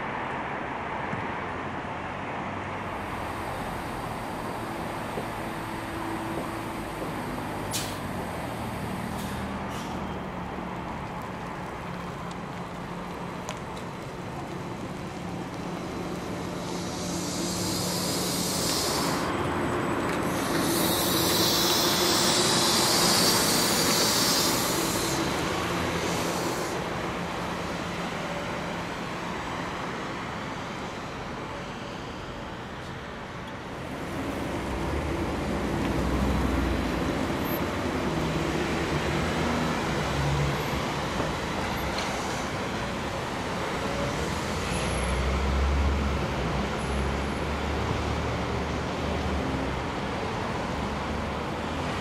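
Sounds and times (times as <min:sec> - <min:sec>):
electric trolley bus hum: 0:00.0 - 0:52.0
air hiss bursts: 0:03.1 - 0:10.0, 0:16.0 - 0:19.4, 0:20.2 - 0:27.5.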